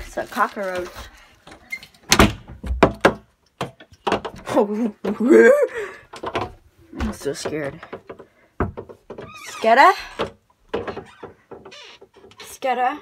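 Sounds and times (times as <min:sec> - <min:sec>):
door thumping and knocking: 0:02.1 - 0:05.2, 0:06.2 - 0:12.4
person calling out: 0:04.5 - 0:05.9.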